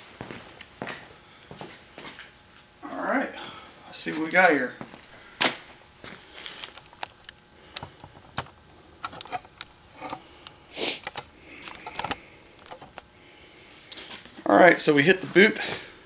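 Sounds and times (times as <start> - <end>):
footsteps on concrete: 0.2 - 2.2, 4.1 - 6.6.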